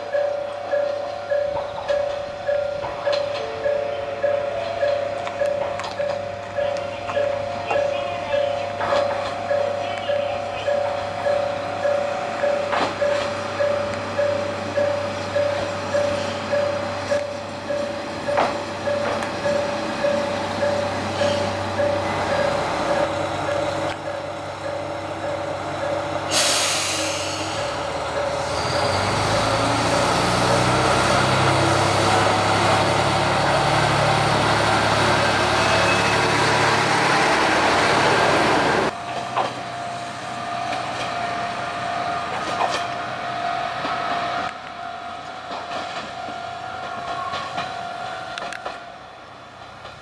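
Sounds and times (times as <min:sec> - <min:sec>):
diesel railcar engine: 0:00.0 - 0:50.0
air brake hiss: 0:26.3 - 0:27.8.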